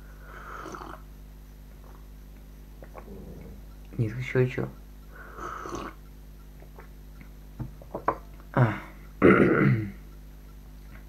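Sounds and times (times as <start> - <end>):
man slurping tea: 0.6 - 1.0, 5.4 - 6.0
man clearing throat: 8.6 - 10.0.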